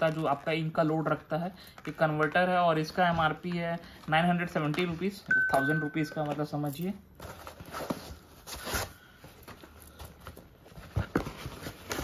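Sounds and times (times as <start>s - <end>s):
foam sheets rustling: 7.2s - 12.0s.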